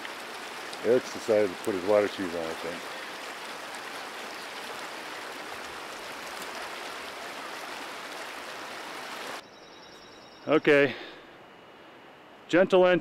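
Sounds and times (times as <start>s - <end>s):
stream water rushing: 0.0s - 9.4s.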